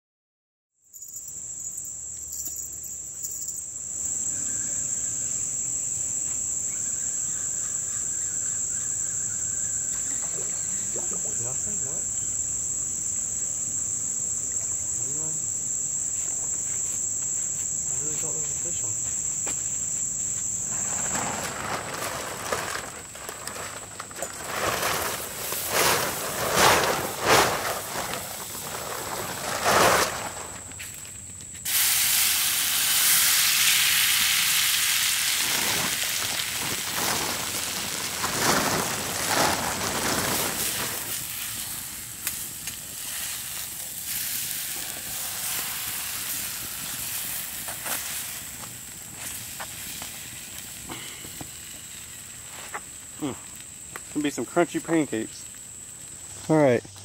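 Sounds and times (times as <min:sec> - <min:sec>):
night insects trilling: 0:00.8 - 0:57.0
food sizzling on a campfire: 0:01.0 - 0:57.0
irregular noisy bursts: 0:19.8 - 0:30.8, 0:31.5 - 0:57.0.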